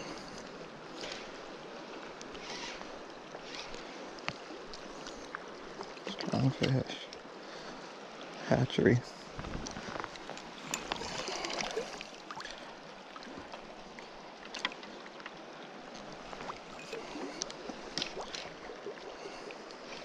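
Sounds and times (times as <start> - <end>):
river water rushing: 10.1 - 20.0.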